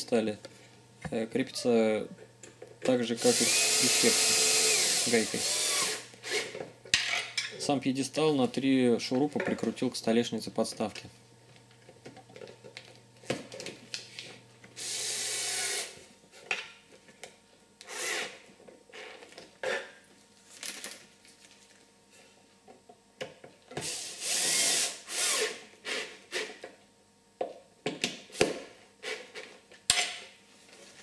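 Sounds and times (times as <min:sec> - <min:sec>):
cordless drill driving screws: 0:03.2 - 0:06.5, 0:14.8 - 0:15.9, 0:23.8 - 0:25.6.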